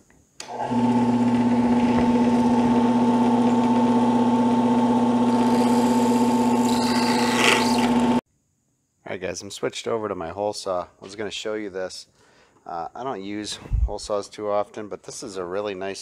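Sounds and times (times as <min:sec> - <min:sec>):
drill press humming: 0:00.4 - 0:08.2
drill bit scratching through plastic: 0:05.3 - 0:08.2.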